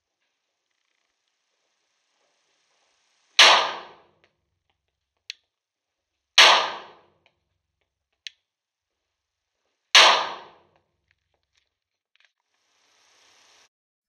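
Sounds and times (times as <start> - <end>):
pistol shots indoors: 3.4 - 4.0, 6.4 - 7.1, 10.0 - 10.7.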